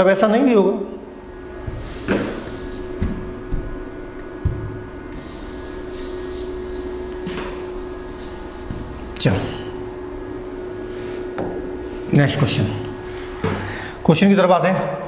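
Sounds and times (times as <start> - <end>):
hand swishing across glass board: 1.7 - 3.2, 5.2 - 9.5.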